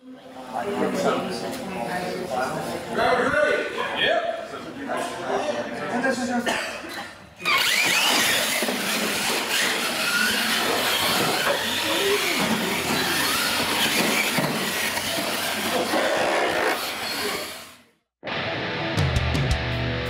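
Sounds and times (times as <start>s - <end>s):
electric motor whining: 7.5s - 17.8s.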